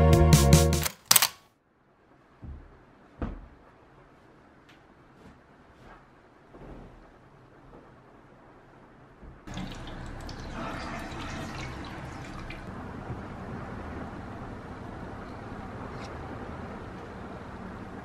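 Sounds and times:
tap water running into cup: 9.5 - 12.7.

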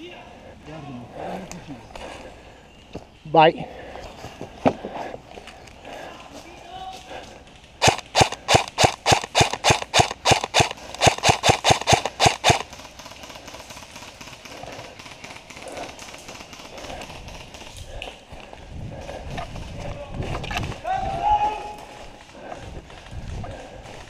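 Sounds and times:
rustling through undergrowth: 0.5 - 20.9
airsoft rifle firing single shots: 7.8 - 12.7.

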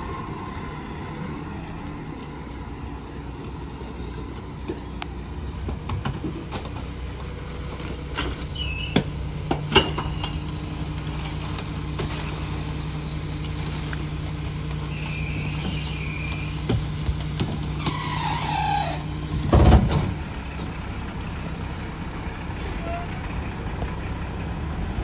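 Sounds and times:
garbage truck engine running: 0.0 - 25.0
high squeals: 4.0 - 6.0, 14.5 - 16.7, 17.8 - 19.1.

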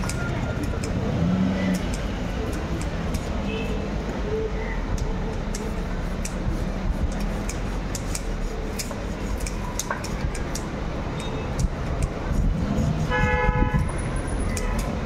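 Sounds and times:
knife scraping fish scales: 5.3 - 13.3, 14.4 - 15.0.

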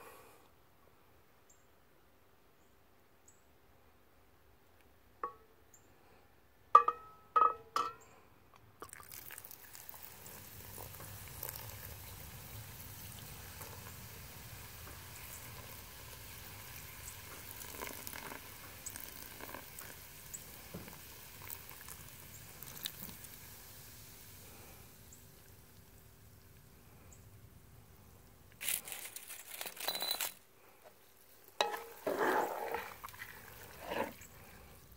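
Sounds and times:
beer pouring from bottle: 8.8 - 14.0, 17.2 - 23.7, 31.6 - 34.5
chili sizzling and splashing: 8.8 - 26.8, 31.2 - 34.9
sharp ringing clinks: 29.8 - 30.4.

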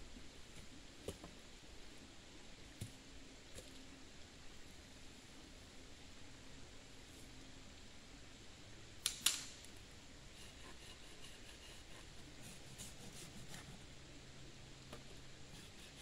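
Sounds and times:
dry wood snapping: 9.0 - 9.7
sticks clicking when handled: 9.0 - 9.7.

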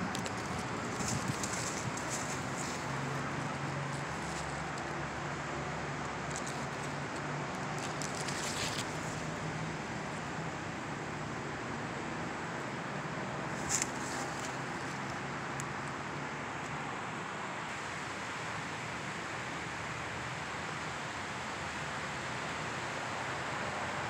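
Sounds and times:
distant traffic hum: 0.0 - 24.0
brief rustles: 7.7 - 9.2.

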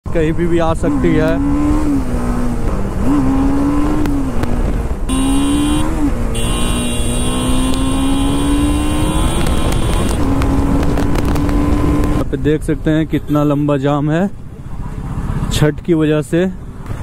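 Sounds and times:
motorcycle engine running: 5.1 - 12.1.

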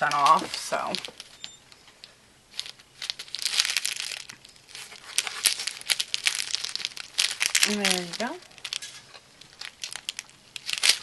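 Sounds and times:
plastic packet crinkling: 0.0 - 11.0.

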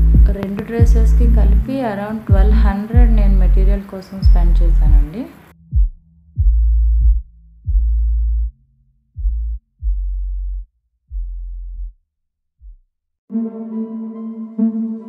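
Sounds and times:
deep sustained bass notes: 0.0 - 12.0
sustained chord: 13.3 - 15.0.

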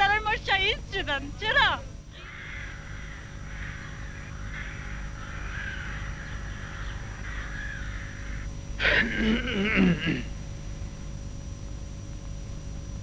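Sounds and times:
crows cawing: 2.1 - 10.3.

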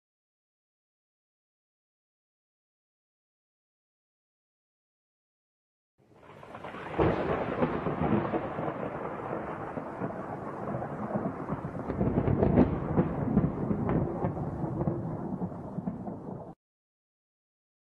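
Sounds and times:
thunder rumbling and cracking: 6.2 - 16.6.

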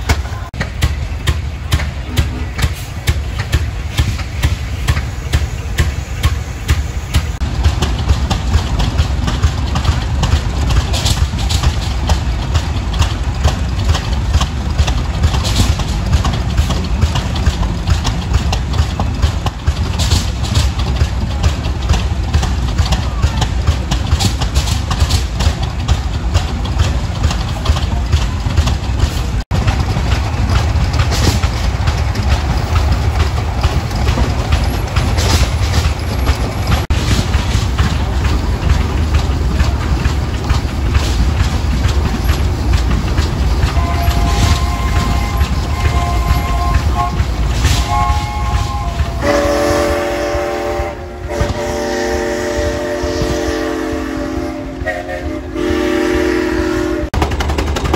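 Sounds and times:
steam traction engine running: 0.0 - 57.9
tractor engines running: 0.0 - 57.9.

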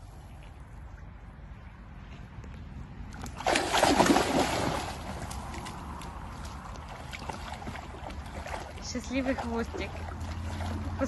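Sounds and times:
dog splashing through water: 3.2 - 11.0.

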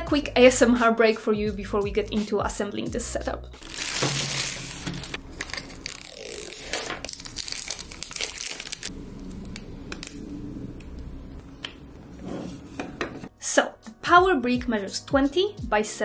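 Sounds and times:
plastic film crinkling and tearing: 3.6 - 8.9.

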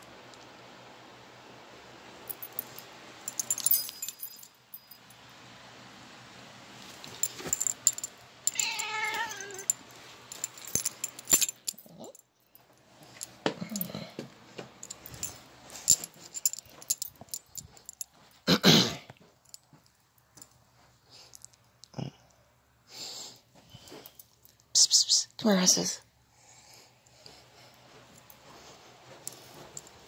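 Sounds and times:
clicks and jingles: 2.3 - 5.2, 6.8 - 18.5, 27.1 - 30.0
cat meowing: 8.5 - 9.7.

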